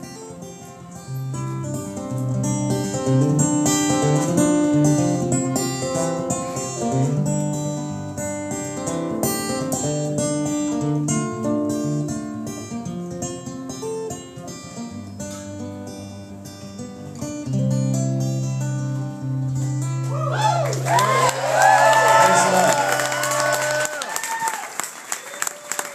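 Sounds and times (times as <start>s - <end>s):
acoustic guitar strumming: 0.0s - 20.3s.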